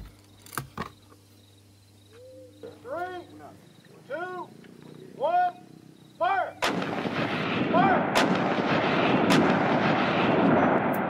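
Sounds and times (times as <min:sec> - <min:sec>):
gunfire and shellfire: 0:06.6 - 0:11.0.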